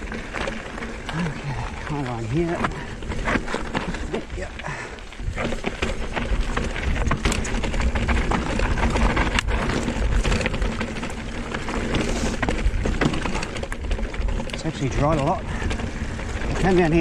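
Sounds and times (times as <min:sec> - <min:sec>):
bike clattering over bumps: 0:00.0 - 0:17.0
tyres on dirt and stones: 0:00.0 - 0:17.0.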